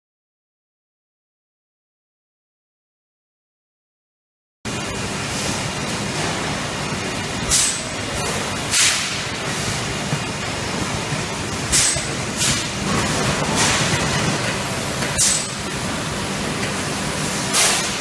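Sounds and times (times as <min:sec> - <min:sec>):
machine hum: 0:04.7 - 0:18.0.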